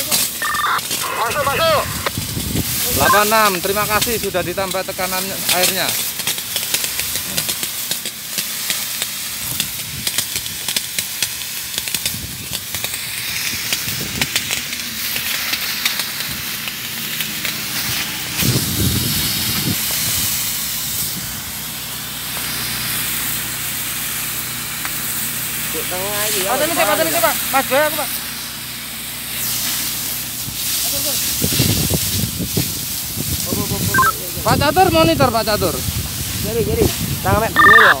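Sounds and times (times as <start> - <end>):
vegetation crackling and popping: 0.0 - 17.5, 37.6 - 38.0
water sizzling on embers: 0.0 - 38.0.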